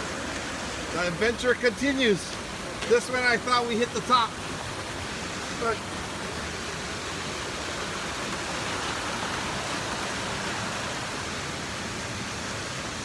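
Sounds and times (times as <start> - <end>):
water rushing over rocks: 0.0 - 13.0.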